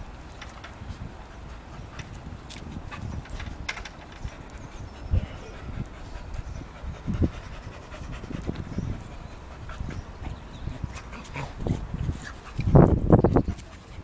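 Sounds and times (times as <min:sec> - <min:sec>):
dog panting: 0:04.1 - 0:14.0.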